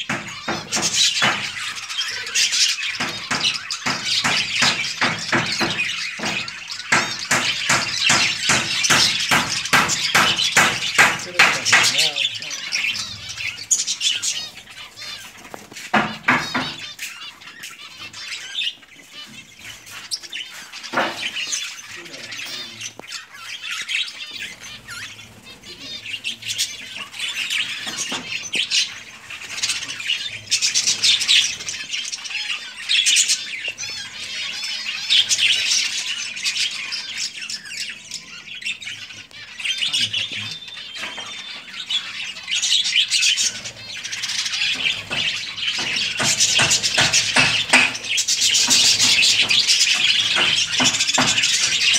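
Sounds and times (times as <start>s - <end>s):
sharp knocks: 0.0s - 1.8s, 2.9s - 12.2s, 15.5s - 17.1s, 20.9s - 21.6s, 44.7s - 51.9s
budgerigars chirping and squawking: 0.0s - 51.9s.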